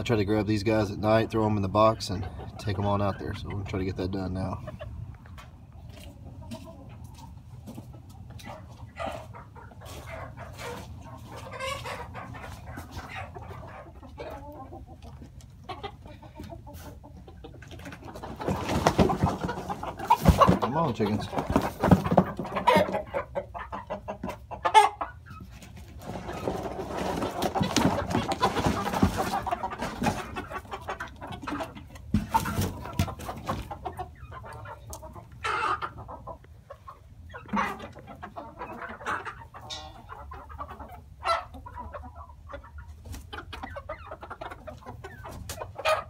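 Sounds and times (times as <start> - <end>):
chickens clucking: 0.0 - 46.0.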